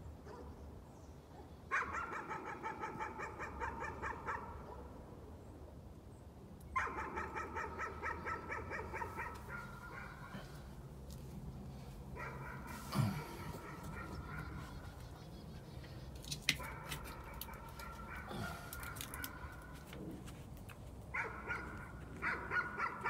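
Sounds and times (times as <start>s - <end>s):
dog barking rapid high yaps: 1.7s - 4.5s, 6.8s - 10.2s, 21.2s - 23.0s.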